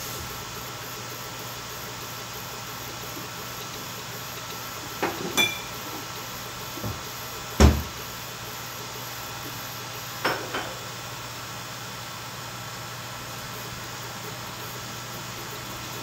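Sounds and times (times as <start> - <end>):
printer fans and motors humming: 0.0 - 16.0
ringing clink: 5.4 - 5.7.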